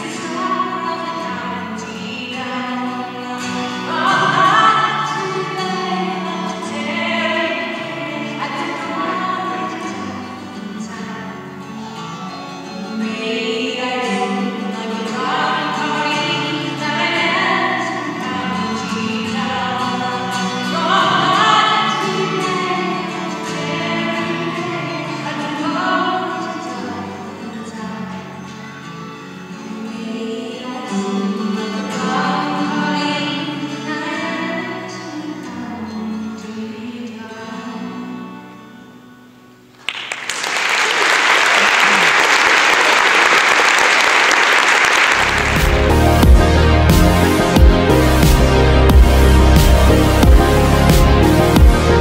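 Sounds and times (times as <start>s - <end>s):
acoustic guitar accompaniment: 0.0s - 40.6s, 44.0s - 52.0s
fiddle melody: 45.2s - 52.0s.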